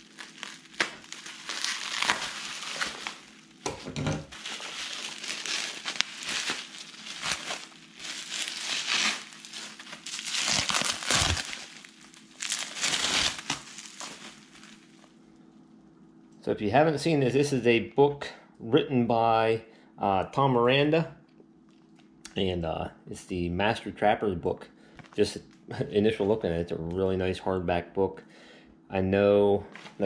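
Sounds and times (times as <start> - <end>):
bubble wrap crinkling: 0.0 - 15.2.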